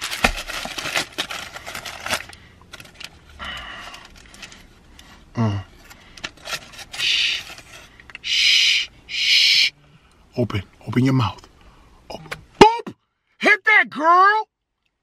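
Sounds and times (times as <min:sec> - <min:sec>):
paper wrapper crinkling: 0:00.0 - 0:04.8, 0:06.2 - 0:08.1
breath: 0:03.4 - 0:05.2, 0:11.6 - 0:12.0.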